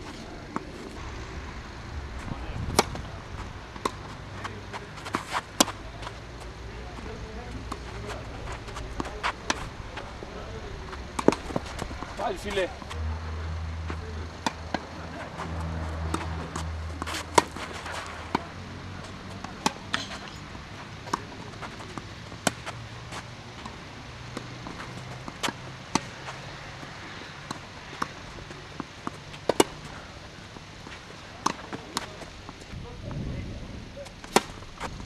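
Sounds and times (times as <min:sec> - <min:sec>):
tennis ball struck by rackets: 0:02.7 - 0:03.2, 0:03.8 - 0:06.2, 0:07.0 - 0:12.3, 0:14.2 - 0:18.5, 0:19.3 - 0:29.9, 0:31.3 - 0:32.3, 0:34.2 - 0:35.0
ball bouncing on court: 0:11.2 - 0:12.2.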